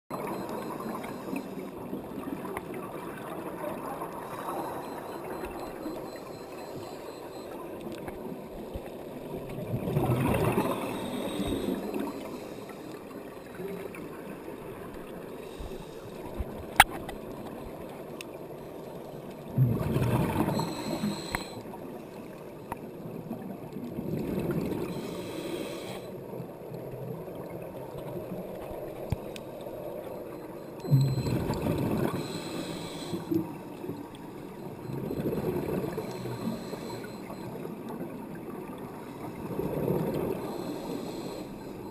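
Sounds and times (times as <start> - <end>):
underwater hiss and gurgle: 0.2 - 41.9
regulator bubbles gurgling: 9.2 - 12.3, 19.4 - 21.6, 30.8 - 40.7.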